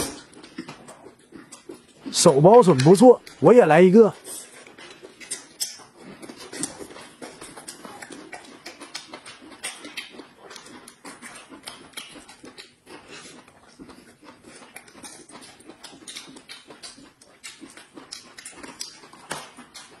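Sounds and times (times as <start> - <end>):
wet chewing: 0.0 - 20.0
small clicks and crackles: 4.4 - 20.0.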